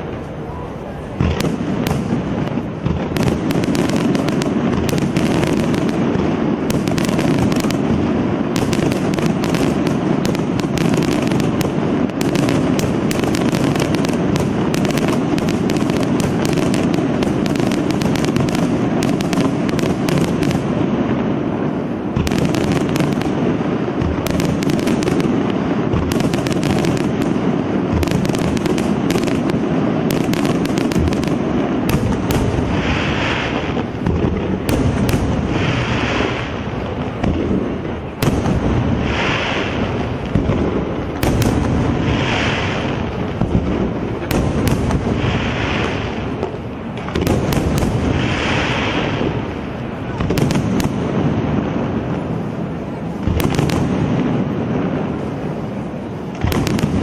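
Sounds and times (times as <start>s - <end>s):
fireworks bangs and crackling: 0.0s - 57.0s.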